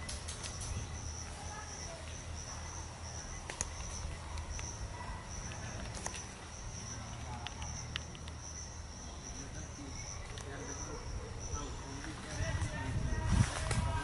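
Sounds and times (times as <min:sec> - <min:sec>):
insects chirring: 0:00.0 - 0:14.0
sharp clicks: 0:03.4 - 0:04.8, 0:07.2 - 0:08.5.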